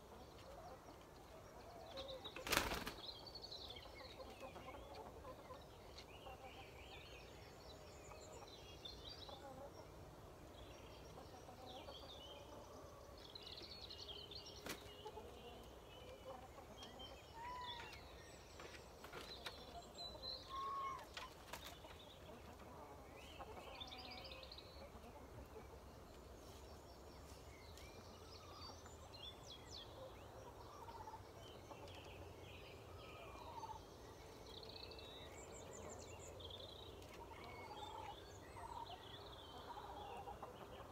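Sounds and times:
chickens calling softly: 36.9s - 40.9s.

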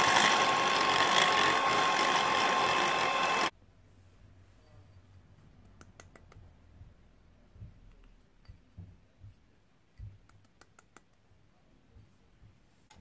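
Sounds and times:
small bowl clicking and knocking: 5.6s - 6.6s, 7.9s - 9.0s, 9.9s - 11.3s.

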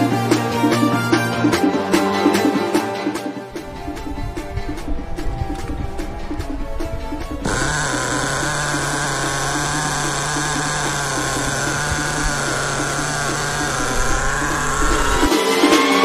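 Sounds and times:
music: 0.0s - 16.0s
small rc car engine buzzing: 7.2s - 15.8s.

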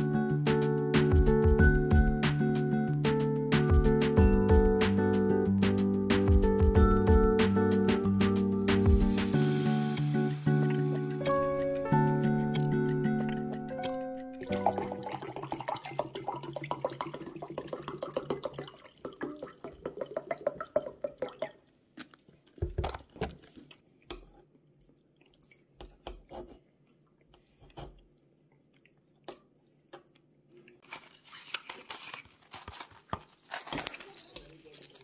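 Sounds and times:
spoon stirring thick porridge: 25.8s - 26.7s.

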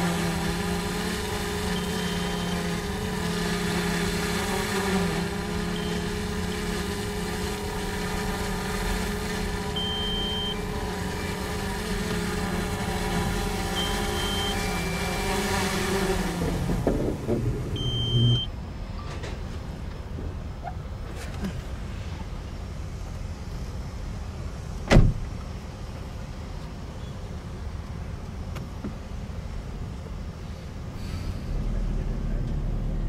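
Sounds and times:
heavy diesel engines running: 0.0s - 33.0s
short high electronic beep: 9.8s - 11.4s, 13.8s - 15.3s, 17.8s - 18.5s.

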